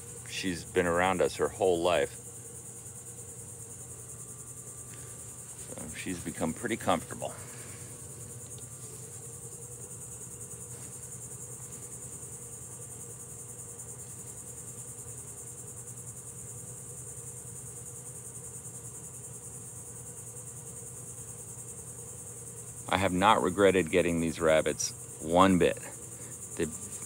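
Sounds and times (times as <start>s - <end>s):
faint low hum: 0.0s - 17.2s
insects singing: 0.0s - 27.0s.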